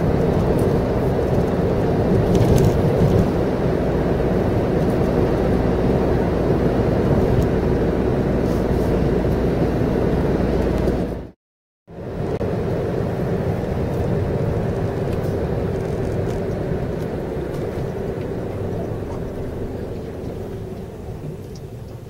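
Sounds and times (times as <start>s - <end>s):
car engine running: 0.0s - 22.0s.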